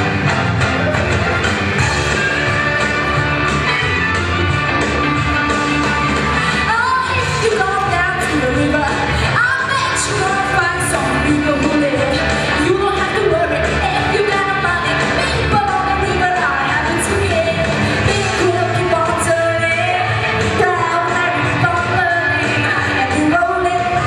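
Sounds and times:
pop backing music: 0.0s - 24.0s
woman singing into microphone: 6.4s - 24.0s.

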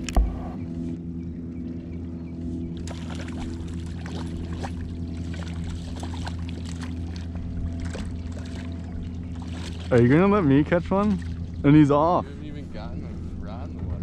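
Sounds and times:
boat motor droning: 0.0s - 14.0s
fish splashing in water: 2.8s - 10.0s.

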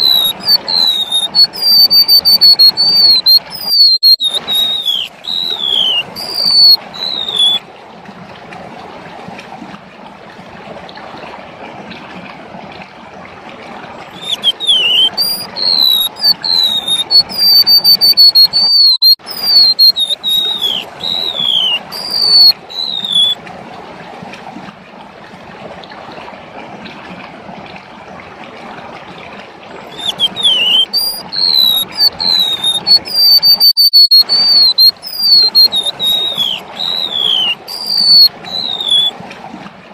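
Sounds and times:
bird singing whistled notes: 0.0s - 7.6s, 14.2s - 23.4s, 29.9s - 39.1s.

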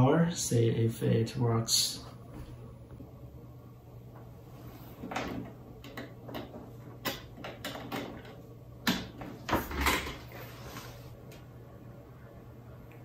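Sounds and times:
faint steady hum: 0.0s - 13.0s
small clicks and knocks: 5.0s - 10.2s.

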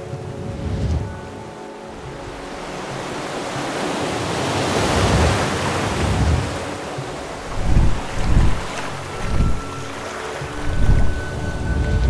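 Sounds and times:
sea waves rushing: 0.0s - 12.0s
deep thumps: 7.4s - 9.7s.

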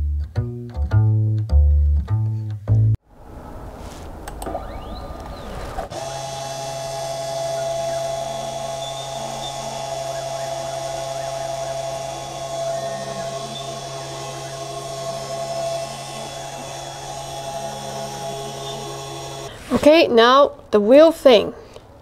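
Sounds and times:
spindle motor humming: 4.1s - 19.8s.

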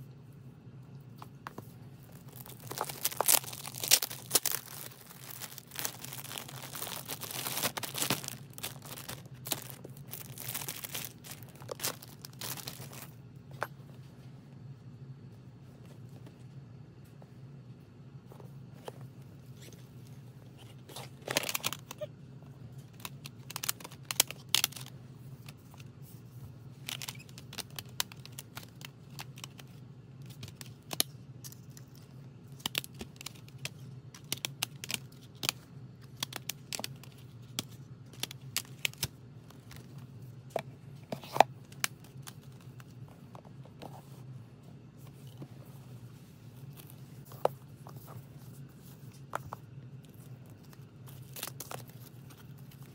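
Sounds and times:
low steady hum: 0.0s - 52.9s
plastic cd cases clicking: 1.5s - 13.0s, 21.2s - 22.0s, 22.9s - 25.8s, 26.8s - 31.1s, 32.5s - 39.9s, 40.6s - 43.8s, 50.6s - 52.9s
packaging crinkling: 1.5s - 13.2s, 21.0s - 22.1s, 46.6s - 52.9s.

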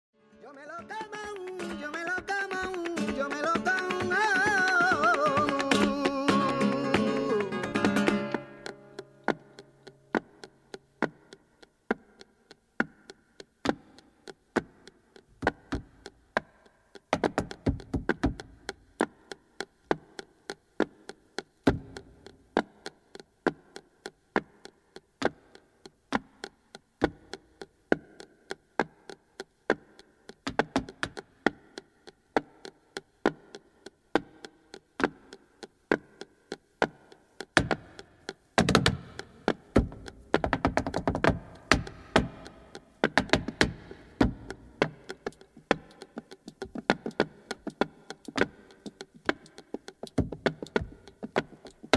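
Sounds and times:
heeled shoes striking wooden floor: 7.8s - 19.1s, 26.1s - 51.9s.

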